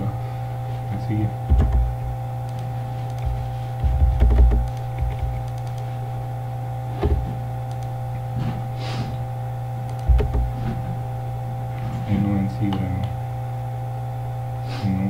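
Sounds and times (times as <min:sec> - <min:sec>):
electrical hum with higher tones: 0:00.0 - 0:15.0
low thumps: 0:01.5 - 0:02.2, 0:03.2 - 0:05.4, 0:07.0 - 0:07.4, 0:10.0 - 0:11.0
computer mouse and keyboard clicks: 0:02.5 - 0:05.9, 0:07.0 - 0:07.9, 0:09.9 - 0:10.5.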